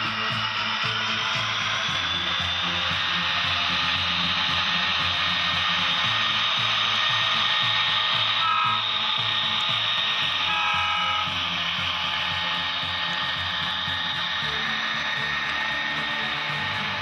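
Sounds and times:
loud steady hiss: 0.0 - 17.0
model locomotive engine rumble: 0.0 - 17.0
brief high tone: 10.4 - 11.5.

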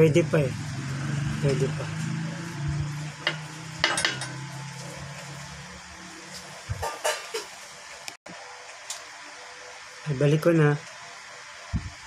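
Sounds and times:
low hum: 0.3 - 6.8.

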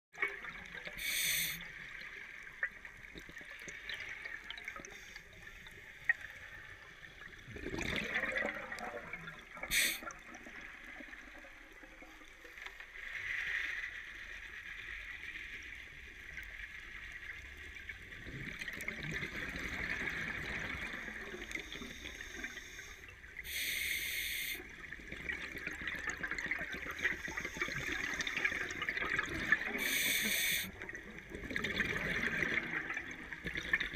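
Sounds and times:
steady underwater hiss: 0.8 - 2.7, 3.4 - 7.4, 9.6 - 10.9, 20.9 - 25.0, 26.8 - 31.0
diver regulator breaths: 1.0 - 1.6, 9.7 - 10.0, 21.6 - 24.6, 29.8 - 30.8
exhaled bubbles: 7.2 - 12.1, 18.2 - 22.5, 24.8 - 33.9.

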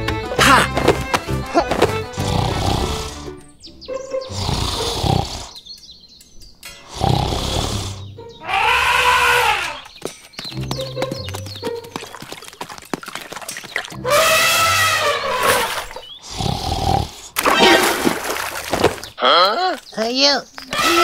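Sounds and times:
background music: 0.0 - 5.4, 6.7 - 12.5, 13.6 - 15.4
animal roaring calls: 6.9 - 9.8, 14.0 - 17.1.

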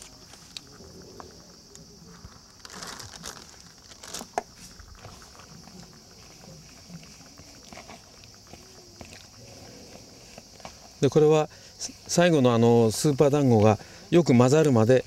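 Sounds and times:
steady high hiss: 0.0 - 15.0
hands mixing bait powder: 3.6 - 14.8.

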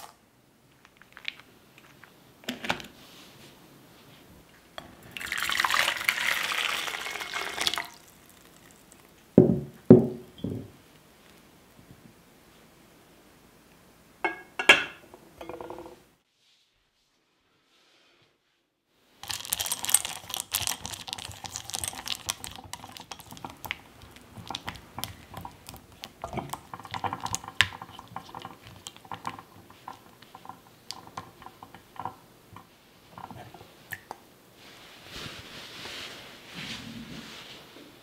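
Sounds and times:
chocolate pieces clicking on glass: 19.2 - 25.5.

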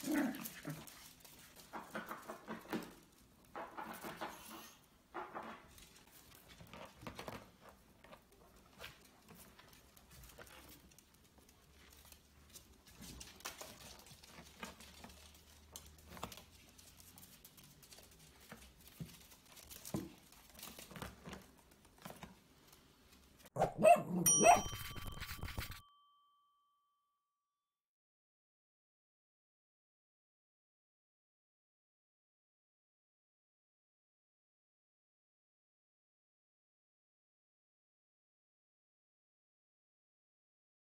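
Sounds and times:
animals scampering on wooden floor: 0.0 - 23.5
outro jingle with bell-like dings: 24.2 - 27.2.

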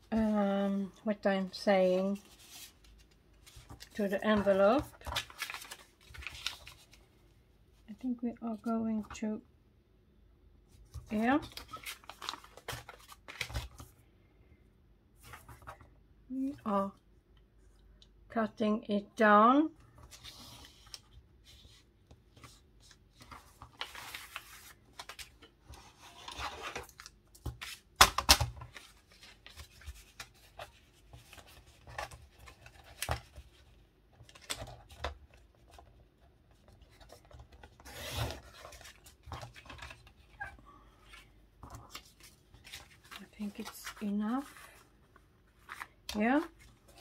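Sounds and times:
paper rustling: 1.8 - 7.1, 10.9 - 13.9, 20.0 - 28.0, 28.6 - 47.0.

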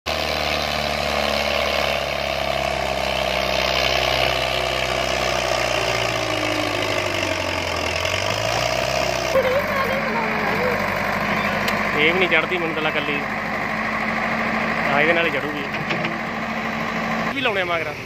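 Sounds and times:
tractor diesel engine under load: 0.1 - 18.0.

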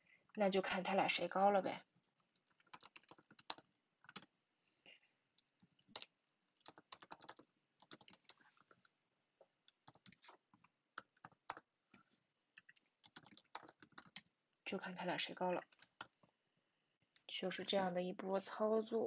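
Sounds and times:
faint typing on keyboard: 2.0 - 14.7, 15.6 - 16.4.

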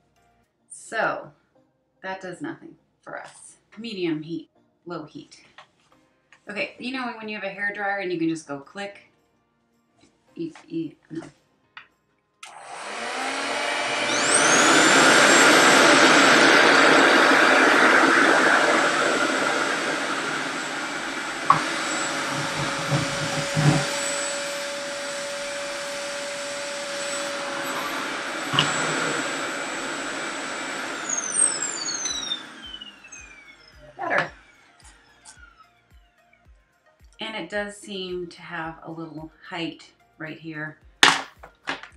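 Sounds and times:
hair dryer motor whine: 12.4 - 36.6.

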